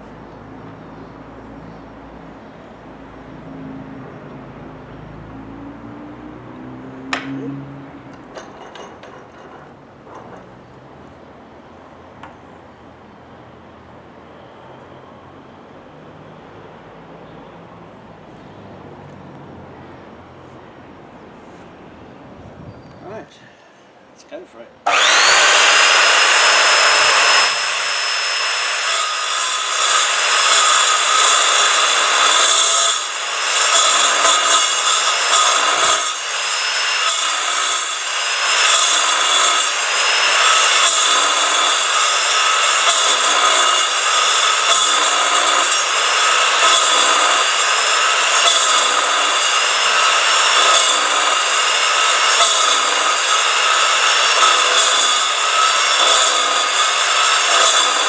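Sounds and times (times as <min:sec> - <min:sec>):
chop saw cutting steel: 0:07.1 - 0:10.6, 0:24.9 - 0:58.0.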